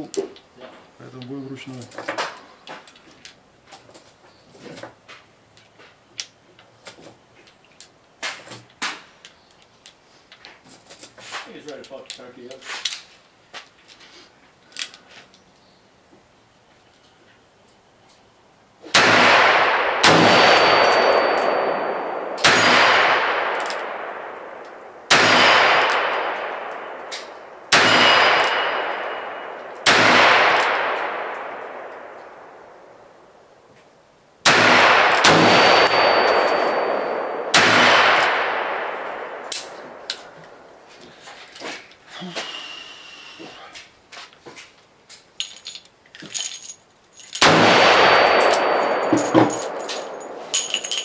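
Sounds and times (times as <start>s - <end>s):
revolver gunshots echoing: 18.9s - 33.1s, 34.4s - 40.8s, 47.4s - 51.0s.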